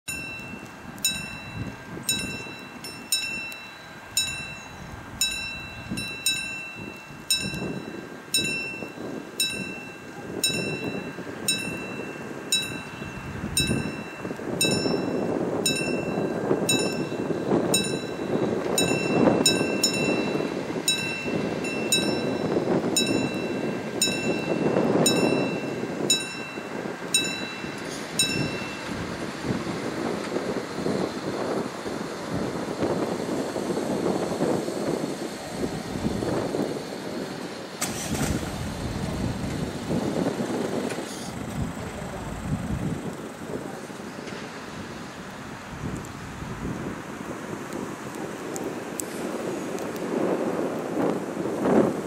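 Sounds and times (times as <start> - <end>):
level-crossing warning bell: 0.1 - 29.8
low rumbling noise: 0.1 - 46.9.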